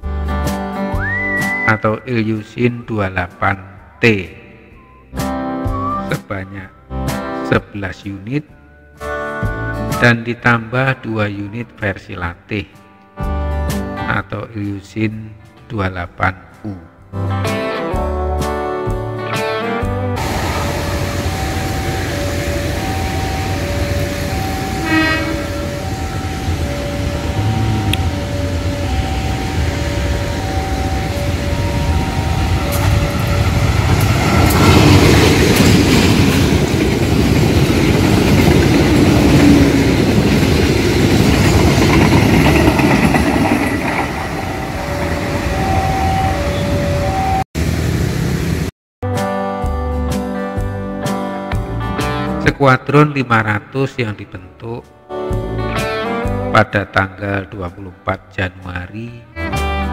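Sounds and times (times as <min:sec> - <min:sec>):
train horn blast: 0:20.2 - 0:29.0
passenger train passing: 0:20.2 - 0:48.7
level-crossing two-tone chime: 0:20.4 - 0:34.0, 0:43.1 - 0:47.4.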